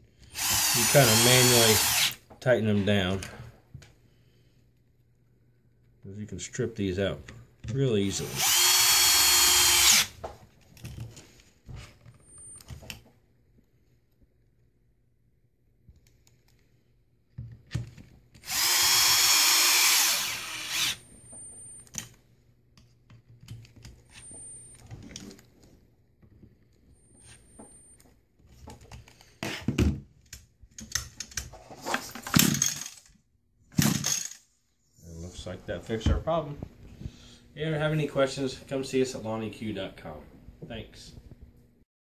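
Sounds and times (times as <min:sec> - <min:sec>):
cordless screwdriver running: 0:00.4 - 0:02.2, 0:08.2 - 0:10.1, 0:18.4 - 0:21.0.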